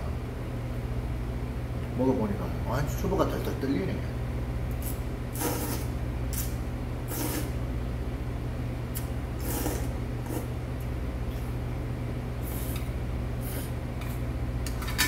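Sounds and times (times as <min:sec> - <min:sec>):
person slurping noodles: 0:09.4 - 0:10.5.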